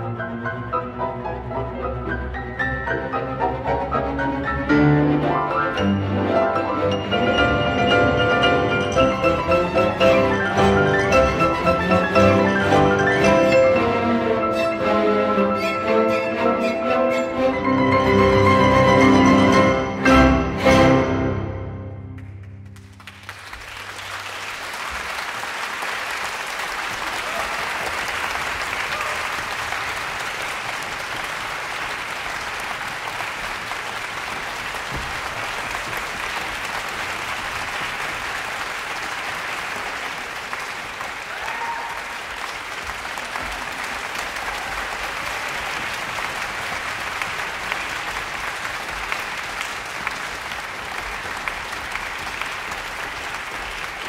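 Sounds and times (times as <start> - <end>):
audience applauding: 22.2 - 54.0.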